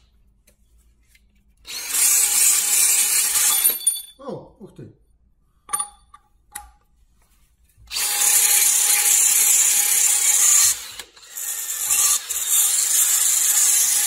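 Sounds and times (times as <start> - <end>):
drill scraping whir: 1.7 - 3.8, 7.9 - 14.0.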